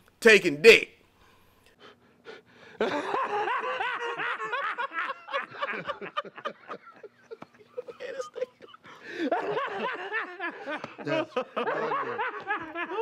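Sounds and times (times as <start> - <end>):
men laughing: 2.6 - 13.0.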